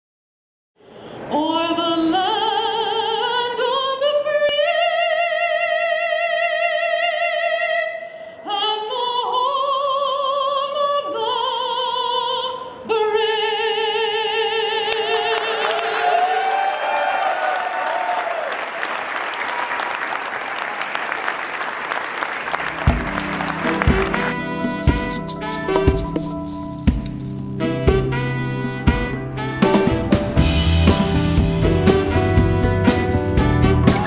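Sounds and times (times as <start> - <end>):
woman singing opera: 1.3 - 15.8
applause: 15.2 - 25.1.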